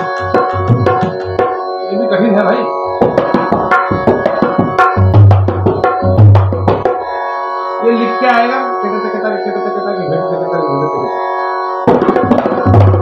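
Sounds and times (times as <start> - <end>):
dholak drum hand strokes: 0.0 - 1.7, 3.0 - 7.2, 11.8 - 13.0
sustained background tones: 0.0 - 13.0.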